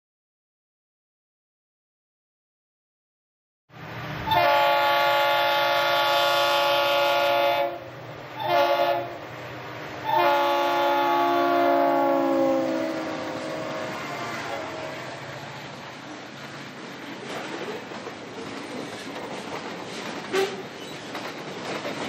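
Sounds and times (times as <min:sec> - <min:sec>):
train rumble: 0:03.7 - 0:22.0
locomotive air horn: 0:04.3 - 0:09.2, 0:10.0 - 0:15.0.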